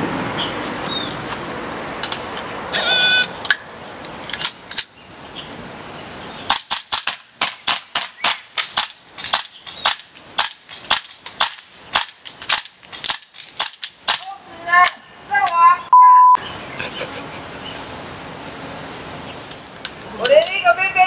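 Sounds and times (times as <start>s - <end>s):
brief high-pitched tone: 15.9s - 16.4s.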